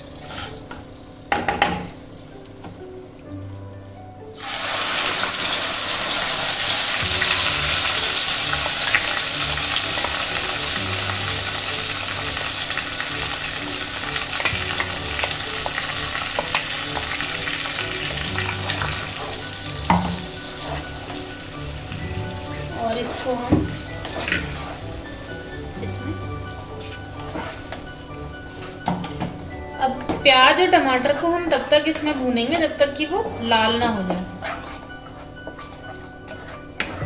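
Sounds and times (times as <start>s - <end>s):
wooden spatula scraping a pan: 0.0s - 0.7s, 20.2s - 21.5s, 22.8s - 25.2s, 26.6s - 29.0s, 33.4s - 37.0s
puree sizzling in hot oil: 4.4s - 29.0s.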